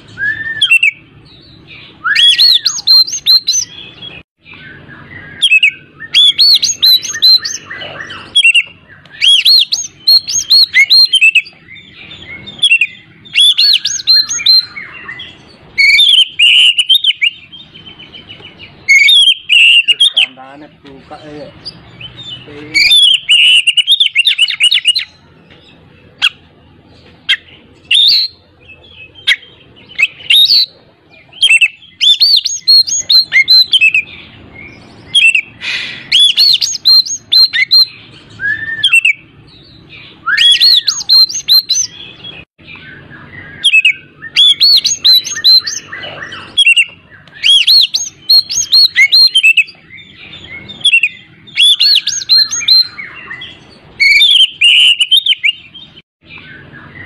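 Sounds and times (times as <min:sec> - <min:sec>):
bird slurred whistles: 0:00.0 - 0:01.0, 0:02.0 - 0:04.2, 0:04.8 - 0:17.4, 0:18.9 - 0:20.3, 0:22.8 - 0:25.1, 0:29.2 - 0:34.1, 0:35.1 - 0:39.2, 0:40.2 - 0:42.0, 0:43.5 - 0:49.8, 0:50.6 - 0:55.7
bird singing chattering notes: 0:00.0 - 0:57.0.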